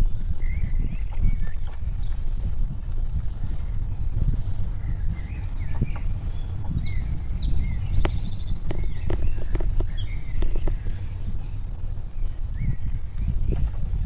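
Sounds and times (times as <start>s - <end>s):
low rumble: 0.0s - 14.0s
songbirds singing: 0.0s - 14.0s
sharp clicks: 7.9s - 11.3s.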